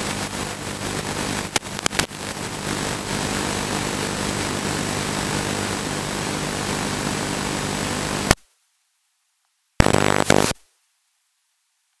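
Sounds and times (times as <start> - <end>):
burst of static: 0.0 - 8.4, 9.8 - 10.6
hiss and low hum: 0.0 - 8.7, 9.8 - 11.1.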